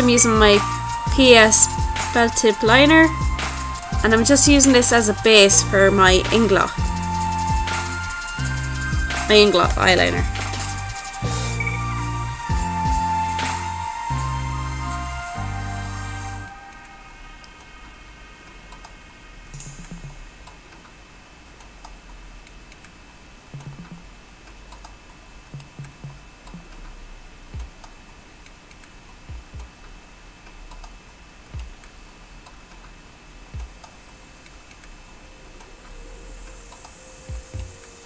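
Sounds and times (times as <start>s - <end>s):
faint steady hum: 0.0s - 38.0s
soft clicks and low knocks: 21.6s - 27.0s, 27.6s - 35.7s.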